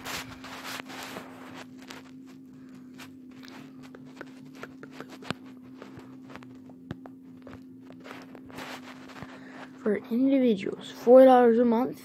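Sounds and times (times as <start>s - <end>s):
steady low hum: 0.0s - 12.0s
small clicks and taps: 3.4s - 8.5s.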